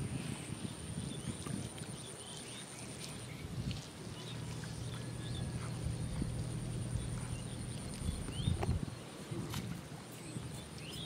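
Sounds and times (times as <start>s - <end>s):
low rumble: 4.6s - 8.9s.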